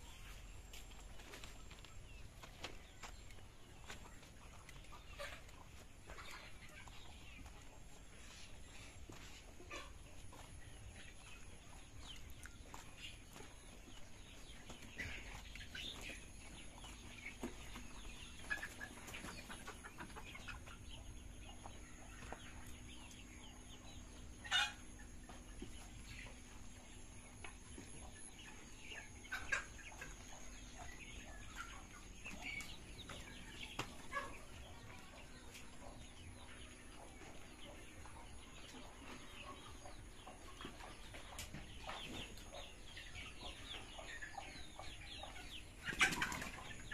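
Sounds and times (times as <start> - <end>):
chickens clucking softly: 0.0 - 46.9.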